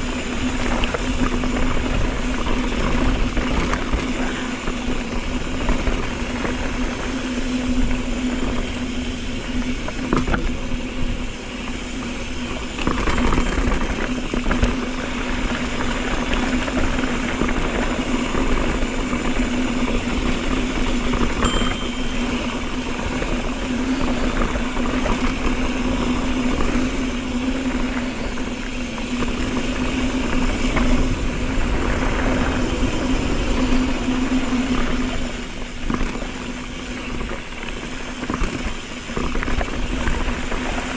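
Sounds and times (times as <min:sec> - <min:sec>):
bike knocking and rattling: 0:00.0 - 0:40.9
steady buzz from bike: 0:00.0 - 0:40.9
wind on microphone: 0:00.0 - 0:40.9
tyres rolling over dirt and rock: 0:09.4 - 0:21.4.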